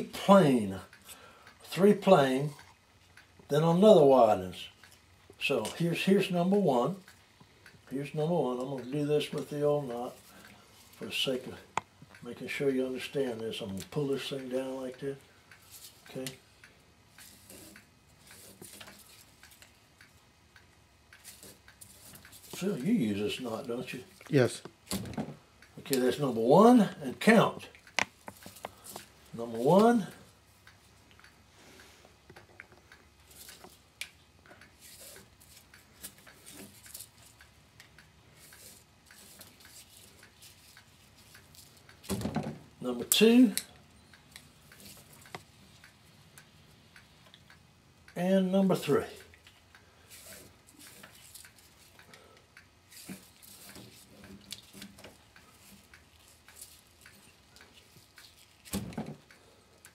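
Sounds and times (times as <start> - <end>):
small clicks and rustles of cord: 0.0 - 3.5, 4.3 - 26.2, 26.8 - 59.9
net twine rustling: 38.4 - 42.2, 49.6 - 52.0, 52.8 - 59.9.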